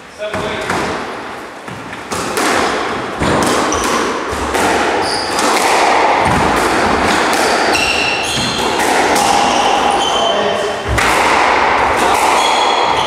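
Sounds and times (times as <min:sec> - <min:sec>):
squash ball hits: 0:00.2 - 0:13.0
shoes squeaking on wooden floor: 0:03.6 - 0:04.0, 0:05.0 - 0:05.4, 0:07.5 - 0:11.0.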